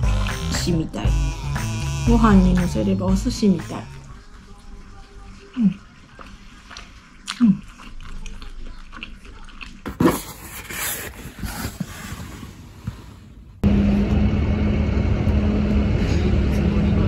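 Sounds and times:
outdoor hum: 12.8 - 17.0.

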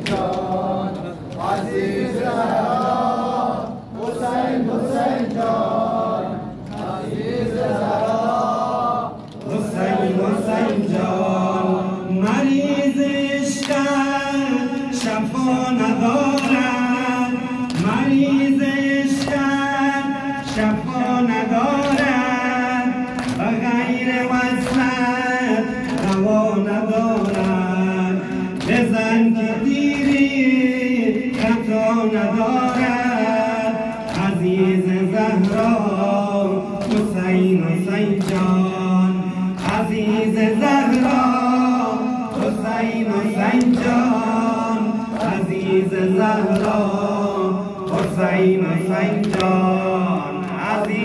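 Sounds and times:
men chanting a lament: 0.0 - 51.0
hands slapping chests: 25.8 - 26.3, 29.9 - 30.4, 38.2 - 38.6, 40.9 - 41.3, 46.5 - 46.9, 47.9 - 48.3, 49.2 - 49.6.

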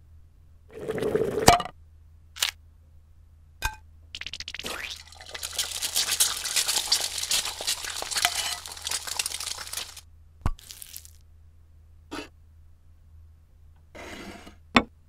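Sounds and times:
frying pan sizzling: 4.2 - 10.0, 10.6 - 11.2.

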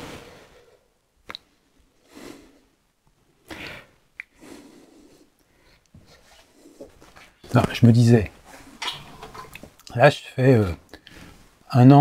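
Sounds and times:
quiet breathing: 0.0 - 7.5, 10.9 - 11.7.

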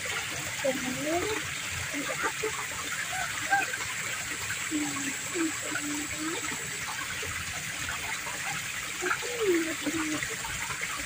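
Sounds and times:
water trickling over stones: 0.0 - 11.0
quiet voices talking: 0.6 - 6.8, 9.0 - 10.4.

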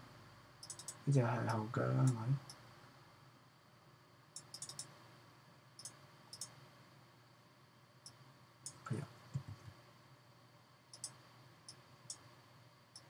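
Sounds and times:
faint computer mouse clicks: 0.6 - 1.0, 4.4 - 4.9, 5.8 - 6.6, 10.9 - 12.2.

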